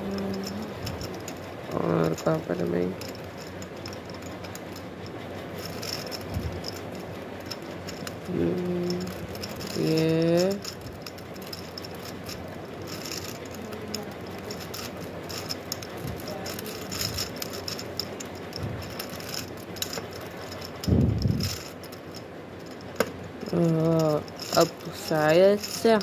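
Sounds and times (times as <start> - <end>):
plastic puzzle gears clicking: 0.0 - 26.0.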